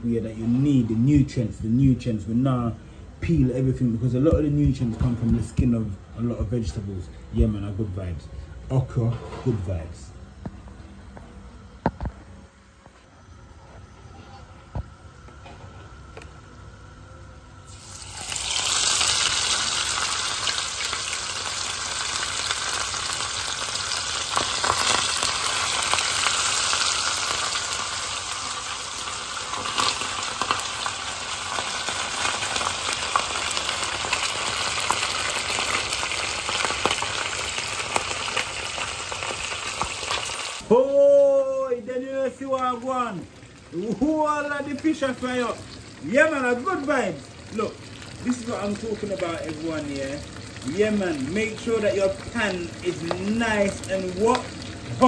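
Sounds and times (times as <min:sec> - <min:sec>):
fish sizzling in hot oil: 0:17.6 - 0:40.7, 0:42.6 - 0:55.0.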